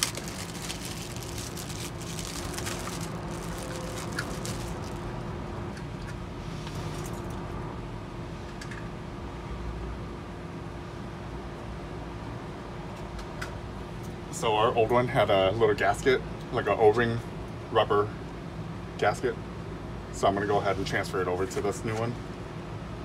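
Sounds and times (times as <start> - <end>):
plastic bag crinkling: 0.0 - 5.4
background hum with faint tone: 0.0 - 23.0.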